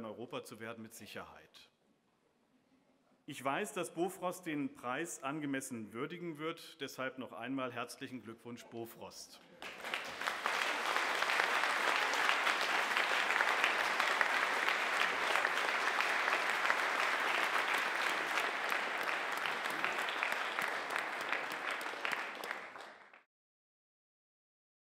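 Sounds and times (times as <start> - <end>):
audience applauding: 9.6 - 23.3.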